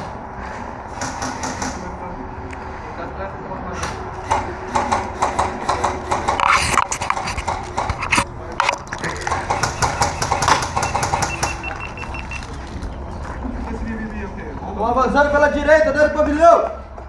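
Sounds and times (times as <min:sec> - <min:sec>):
airsoft guns firing: 0:09.3 - 0:11.7.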